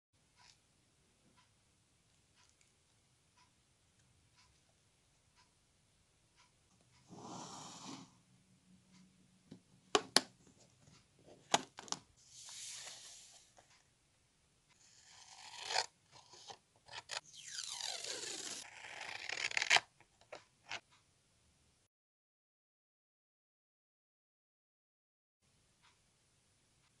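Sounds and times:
pages turning with rustling: 12.3s - 13.7s
scissors cutting paper: 14.8s - 20.8s.

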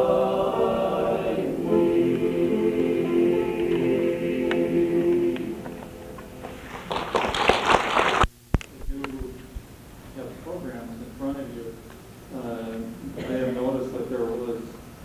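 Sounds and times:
men's chorus singing: 0.0s - 6.6s
applause: 6.4s - 8.3s.

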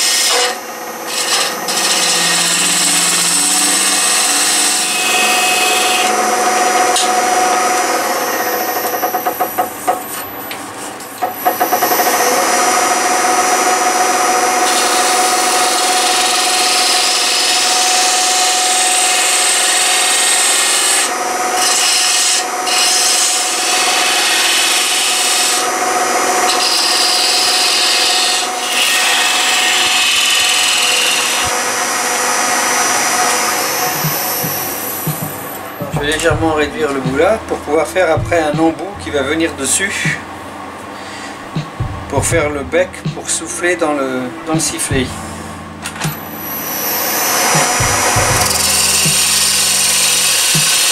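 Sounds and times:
tool scraping wood: 0.0s - 12.4s, 14.4s - 25.7s, 26.4s - 31.6s, 33.1s - 38.9s, 46.0s - 50.9s
wood lathe humming: 0.0s - 40.2s, 43.8s - 50.9s.

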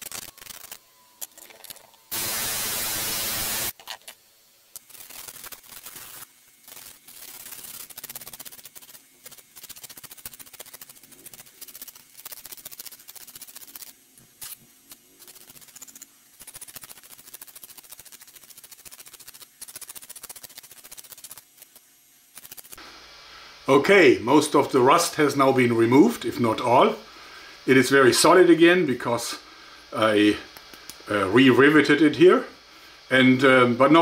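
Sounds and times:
sanding sponge rubbing steel: 4.9s - 14.6s, 15.2s - 21.7s.

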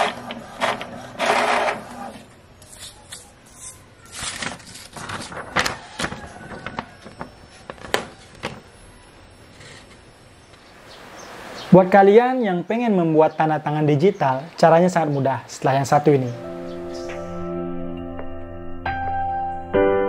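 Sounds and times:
inkjet printer mechanism running: 0.0s - 2.3s
paper rustling and crinkling: 2.6s - 8.7s.

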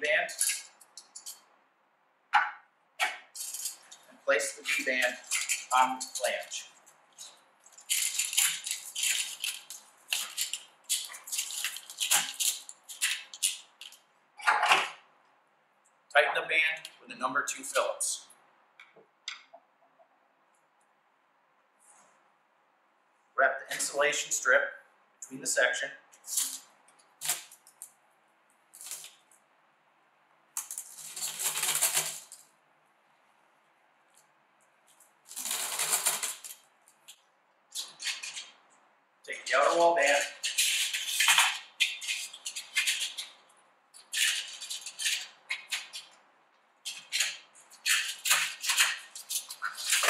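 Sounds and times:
gloved hands rustling insulation strip: 3.4s - 14.0s, 34.8s - 38.6s.

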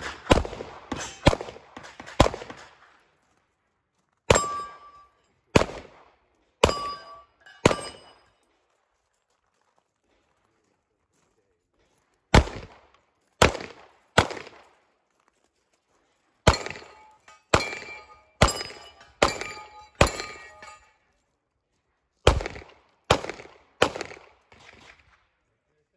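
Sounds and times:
handgun shots echoing: 0.0s - 2.9s, 4.3s - 8.3s, 12.3s - 14.8s, 16.5s - 20.8s, 22.2s - 25.1s.

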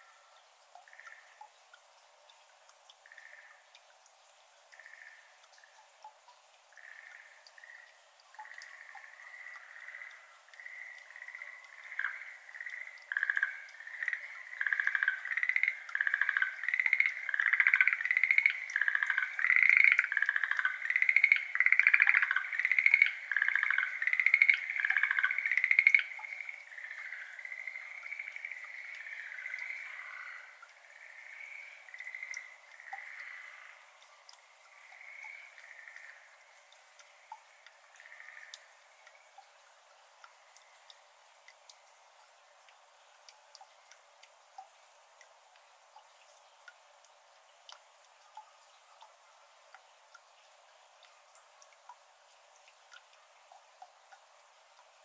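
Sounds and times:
frogs calling in trills: 0.0s - 1.4s, 3.0s - 3.7s, 4.7s - 5.4s, 6.7s - 39.4s
faint water drips: 0.0s - 55.0s.

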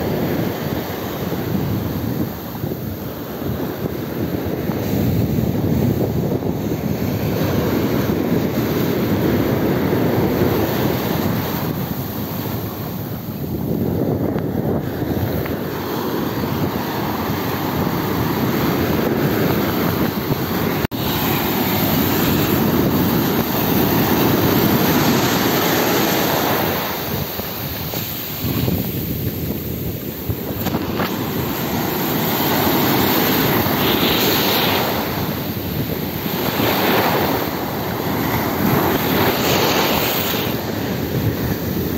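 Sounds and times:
ocean surf breaking on sand: 0.0s - 41.9s
wind buffeting microphone: 0.0s - 41.9s.

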